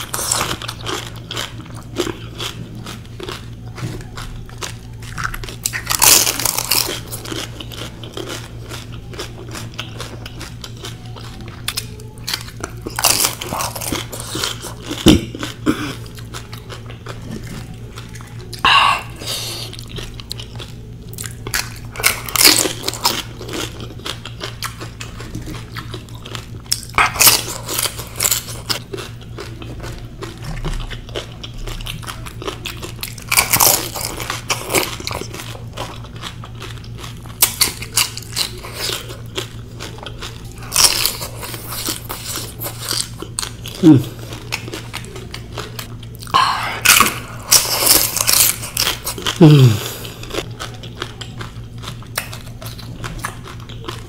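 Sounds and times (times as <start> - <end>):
crisp shells crunching: 0.0 - 54.0
wet chewing: 0.0 - 54.0.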